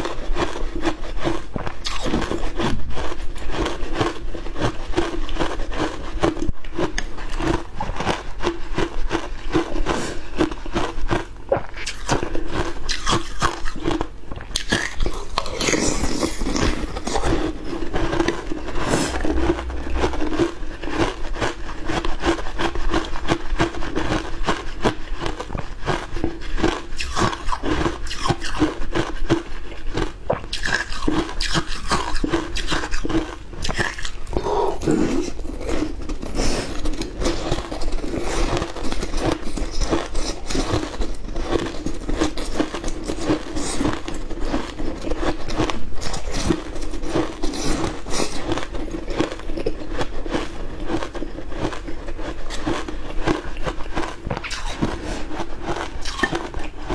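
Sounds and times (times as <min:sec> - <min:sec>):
ice crunching while chewed: 0:00.0 - 0:56.9.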